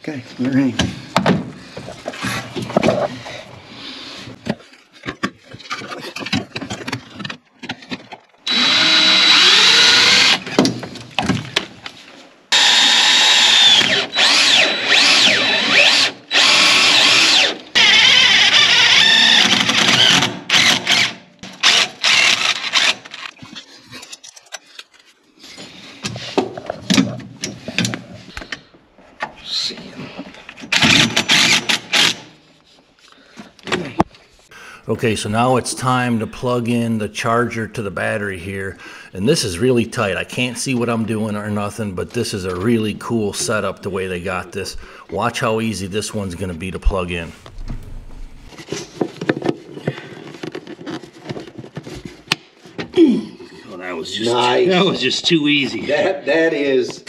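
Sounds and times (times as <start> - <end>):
power drill running: 8.5 - 10.5, 12.5 - 23.0, 30.7 - 32.3.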